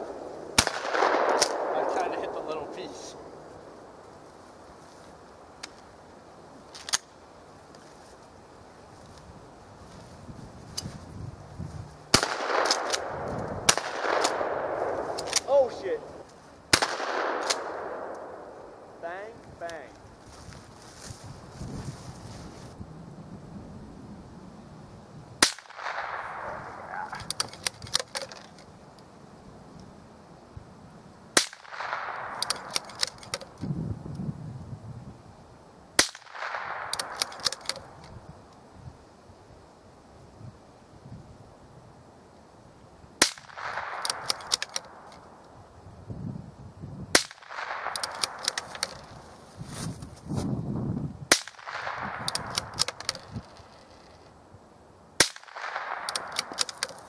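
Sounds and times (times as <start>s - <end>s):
rifle shots with echo: 0.0s - 3.9s, 12.1s - 19.3s, 25.4s - 28.3s, 31.4s - 33.2s, 36.0s - 38.0s, 43.2s - 45.1s, 47.1s - 49.1s, 51.3s - 53.3s, 55.2s - 57.0s
rolling echo: 0.0s - 4.0s, 12.1s - 19.0s
sharp clicks: 6.7s - 7.1s, 12.2s - 18.4s, 25.4s - 29.1s, 31.4s - 34.2s, 36.0s - 38.6s, 43.2s - 45.3s, 47.2s - 49.2s, 51.3s - 54.3s, 55.2s - 57.0s.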